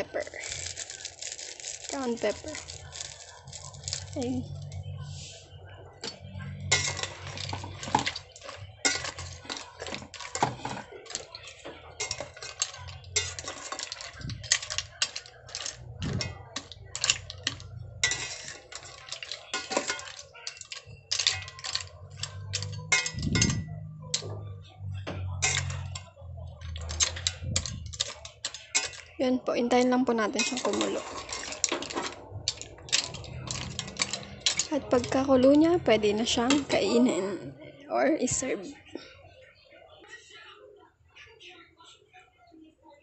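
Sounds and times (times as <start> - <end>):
spoon clinking and scraping pot: 6.0 - 24.6, 25.3 - 37.3.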